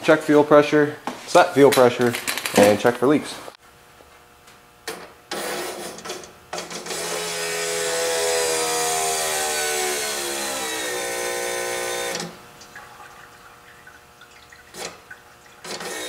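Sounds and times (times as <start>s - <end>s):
electric fuel pump whining: 5.3s - 12.8s, 14.6s - 16.0s.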